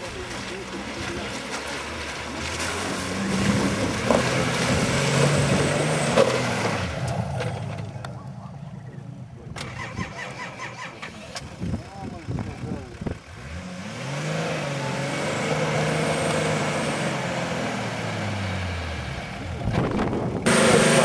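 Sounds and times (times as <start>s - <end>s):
engine revving hard under load: 0.0s - 8.0s, 12.6s - 21.0s.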